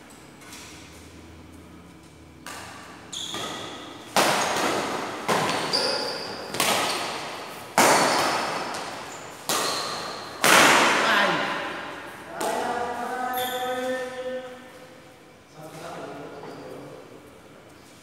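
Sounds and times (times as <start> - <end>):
rackets smacking a shuttlecock: 2.4 - 11.0.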